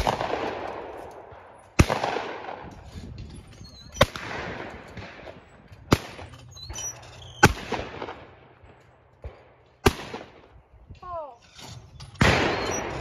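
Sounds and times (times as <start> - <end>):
shotgun shots with echo: 0.0 - 1.0, 1.8 - 2.7, 9.8 - 10.4, 12.2 - 12.9.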